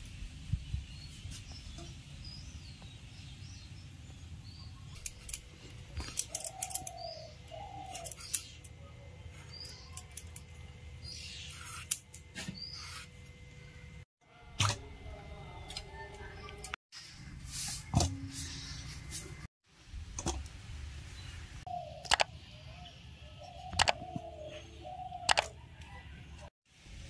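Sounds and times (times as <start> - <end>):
birds chirping: 0.0 - 14.0, 17.8 - 19.5, 21.2 - 26.5.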